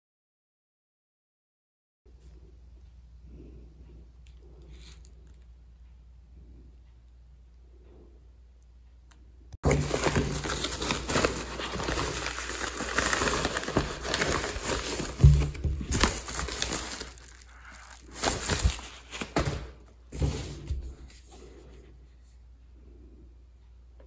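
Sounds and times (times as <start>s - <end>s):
plastic and paper crinkling: 9.6s - 21.3s.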